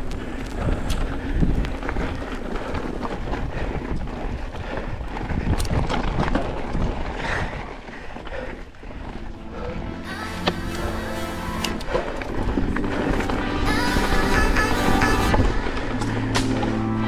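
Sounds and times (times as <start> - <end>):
bike clicks and knocks: 0.0 - 7.3, 15.3 - 16.7
wind buffeting microphone: 0.0 - 10.2, 11.8 - 16.6.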